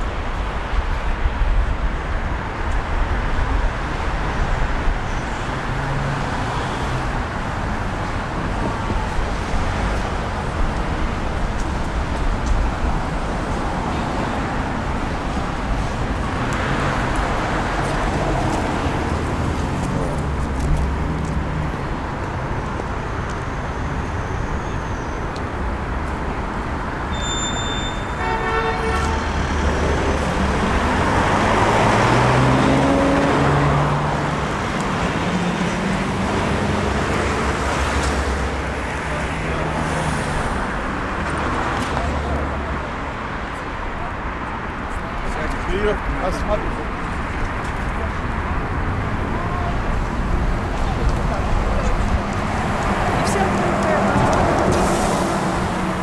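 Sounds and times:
cars driving past: 0:01.9 - 0:56.0
brief high tones: 0:27.1 - 0:28.4.

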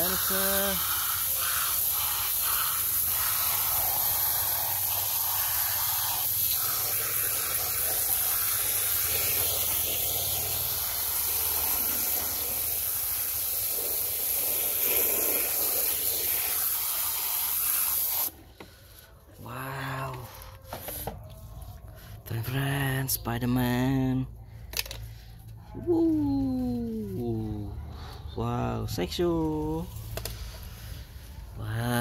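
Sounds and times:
water spray hissing: 0:00.0 - 0:18.9.

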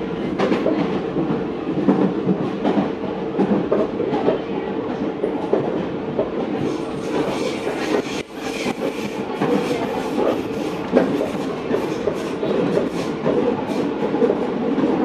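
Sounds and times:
train hiss: 0:06.6 - 0:13.9.

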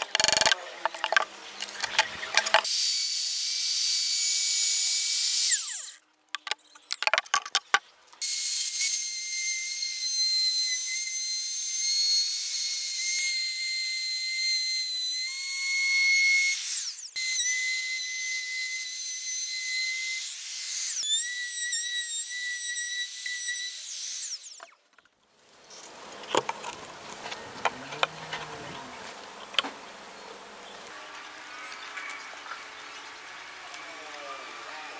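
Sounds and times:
clicks and knocks on wood: 0:00.0 - 0:02.6, 0:06.3 - 0:07.9
router whining through wood: 0:00.0 - 0:06.0, 0:08.2 - 0:24.8, 0:33.1 - 0:34.9.

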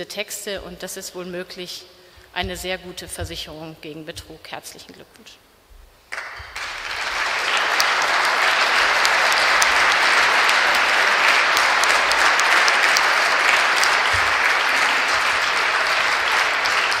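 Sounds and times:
audience applauding: 0:06.1 - 0:17.0.

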